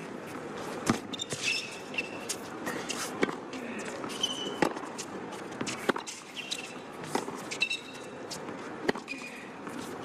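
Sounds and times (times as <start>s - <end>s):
shoes squeaking on hard court: 0.6s - 10.0s.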